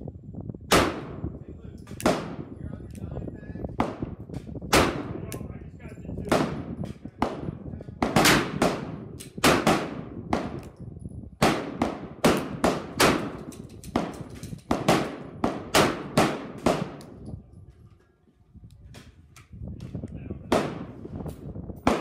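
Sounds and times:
gunshots with ringing tails: 6.2 - 10.7, 11.4 - 17.2.

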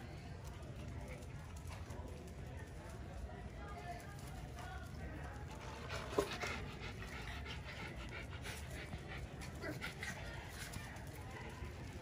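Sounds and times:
small dog sounds: 5.9 - 11.8.

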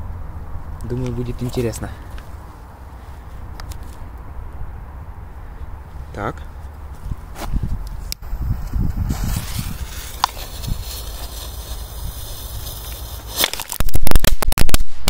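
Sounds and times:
firecracker crackling pops: 9.1 - 15.0.

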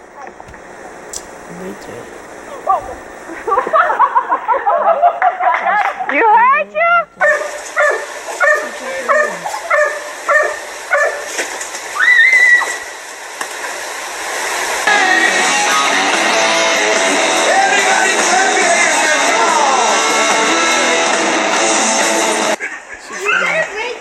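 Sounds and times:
music: 14.9 - 22.6.

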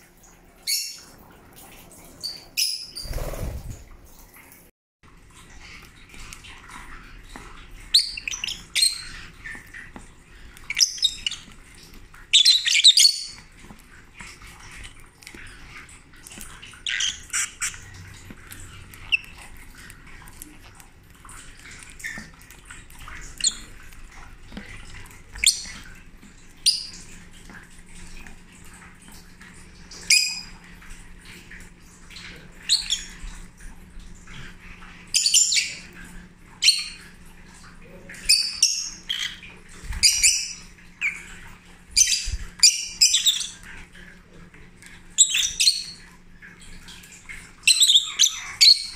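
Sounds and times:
lovebirds chirping and squawking: 0.6 - 1.1, 2.2 - 3.7, 7.9 - 9.4, 10.7 - 11.6, 12.3 - 13.4, 16.7 - 18.0, 23.1 - 23.7, 32.6 - 33.2, 35.1 - 35.9, 36.6 - 37.1, 38.2 - 41.4, 42.0 - 43.7, 45.2 - 46.0, 47.6 - 48.9.

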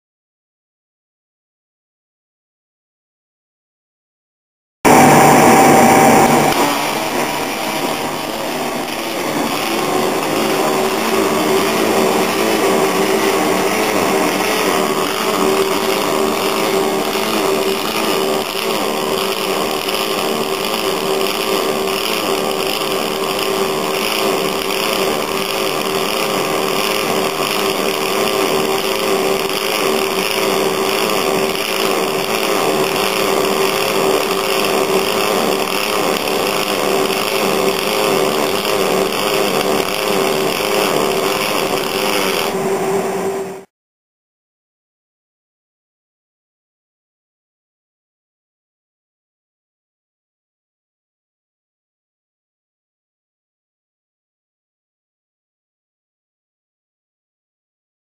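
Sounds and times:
welding arc buzzing: 4.9 - 43.7.

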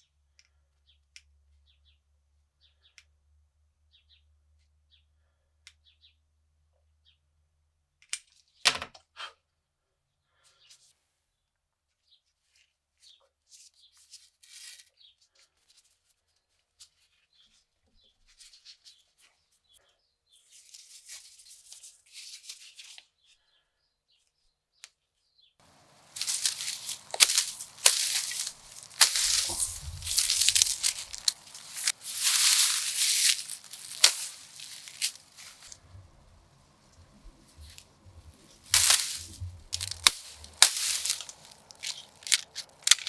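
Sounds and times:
machete swishing through reeds: 25.8 - 36.3, 37.6 - 43.0.

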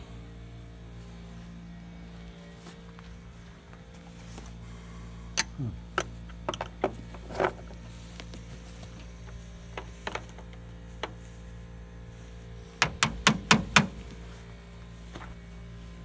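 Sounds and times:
steady low hum: 0.0 - 16.0
hand tools knocking on metal: 12.8 - 14.0.

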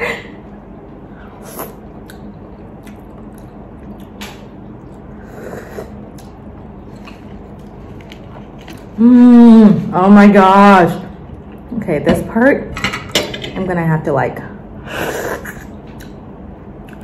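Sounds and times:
person chewing and sucking: 1.4 - 9.0.

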